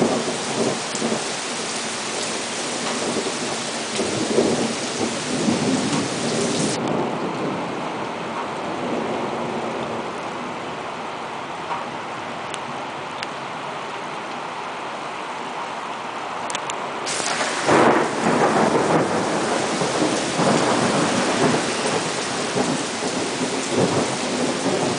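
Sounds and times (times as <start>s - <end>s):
heavy rain pouring: 0.0s - 24.9s
rumbling thunder: 2.8s - 7.9s, 17.1s - 24.9s.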